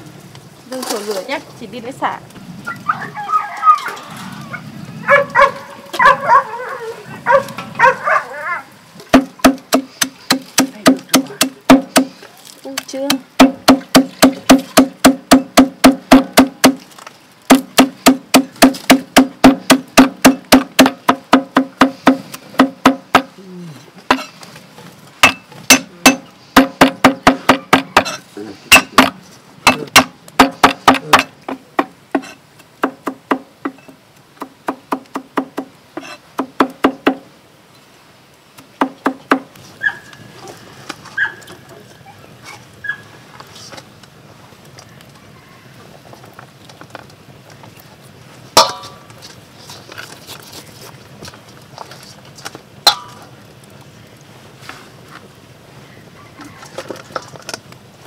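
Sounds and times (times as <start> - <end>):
cleaver chopping on wooden block: 9.1 - 12.2, 13.1 - 16.8, 17.5 - 23.3, 25.2 - 33.8.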